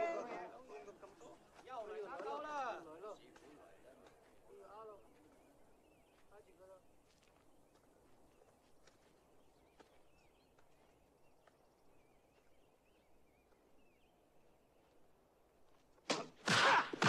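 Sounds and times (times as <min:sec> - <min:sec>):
birds chirping: 0:00.0 - 0:16.1
fight sound effects: 0:16.1 - 0:17.0.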